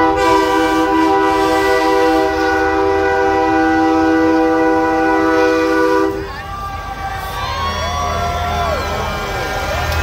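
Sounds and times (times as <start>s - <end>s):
truck air horn chord: 0.0s - 6.2s.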